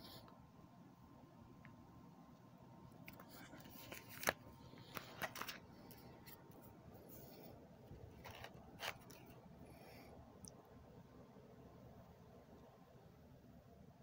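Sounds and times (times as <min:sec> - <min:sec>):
plastic binder sheets crinkling: 0:03.0 - 0:06.6, 0:08.0 - 0:09.4.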